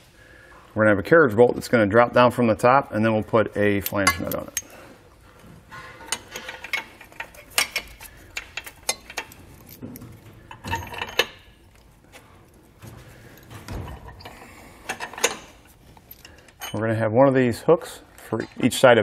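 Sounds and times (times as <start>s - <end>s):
small steel hardware clinking: 3.8s - 4.8s, 6.0s - 11.8s, 14.0s - 16.8s.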